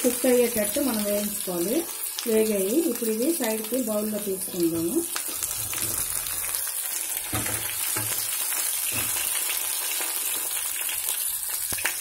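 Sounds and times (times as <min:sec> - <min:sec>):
vegetables sizzling in oil: 0:00.0 - 0:12.0
spatula scraping pan: 0:04.7 - 0:06.6.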